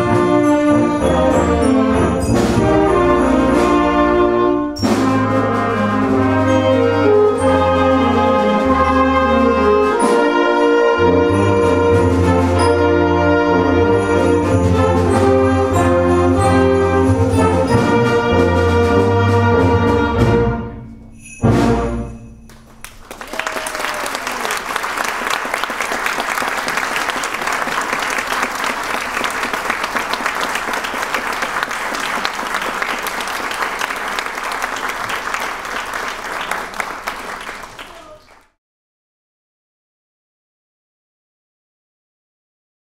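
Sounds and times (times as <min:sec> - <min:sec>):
audience applauding: 0:22.5 - 0:38.6.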